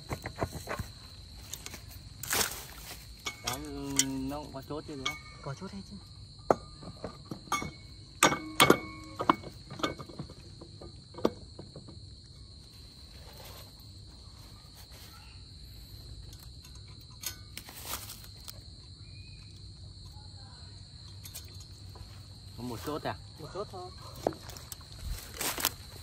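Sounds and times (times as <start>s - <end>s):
crickets chirring: 0.0s - 26.0s
metal parts clanking: 1.4s - 5.6s, 6.5s - 11.4s, 16.2s - 18.5s, 21.0s - 22.0s.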